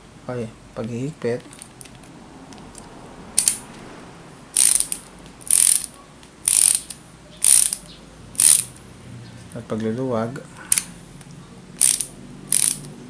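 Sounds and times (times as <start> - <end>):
ratcheting screwdriver clicking: 3.4 - 3.6, 4.6 - 7.8, 8.4 - 8.7, 11.8 - 12.9.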